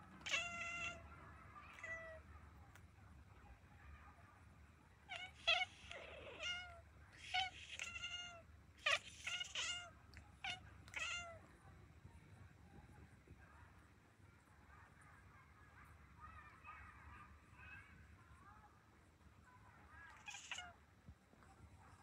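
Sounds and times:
kittens mewing: 0:00.2 - 0:02.2, 0:05.1 - 0:11.4, 0:20.0 - 0:20.8.

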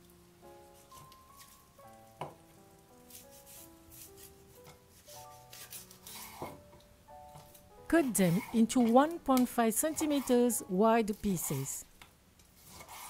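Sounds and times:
quiet melodic music: 0:00.0 - 0:12.0
cleaver scraping meat: 0:03.1 - 0:06.6, 0:07.9 - 0:11.9, 0:12.5 - 0:13.0.

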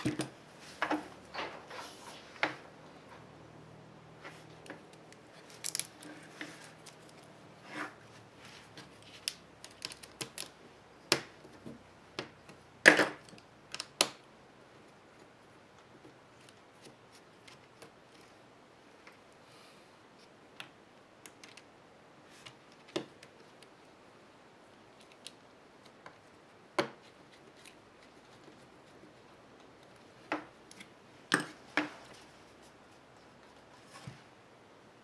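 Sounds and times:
hands handling laptop parts: 0:04.2 - 0:14.2, 0:20.2 - 0:24.0, 0:24.9 - 0:34.3.

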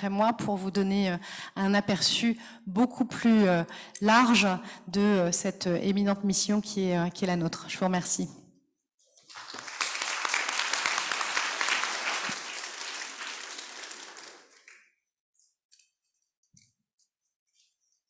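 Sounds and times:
audience applauding: 0:09.2 - 0:14.9.

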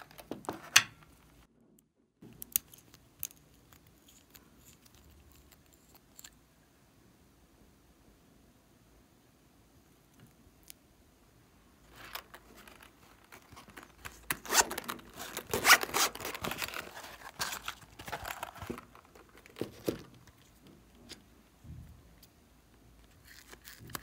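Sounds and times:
handling rustles: 0:11.8 - 0:21.3
zipper being pulled open: 0:14.3 - 0:18.4.

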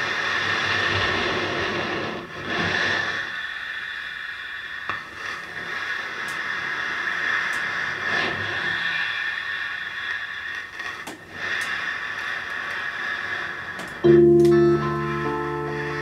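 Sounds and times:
amplifier hiss and hum: 0:13.8 - 0:16.0.

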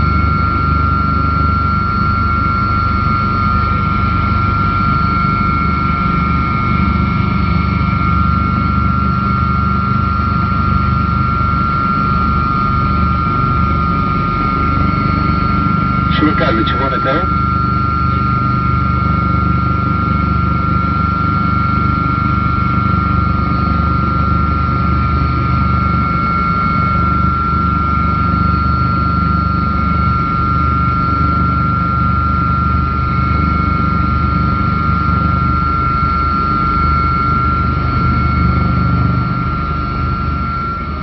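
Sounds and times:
helicopter rotor drone: 0:00.0 - 0:41.0.

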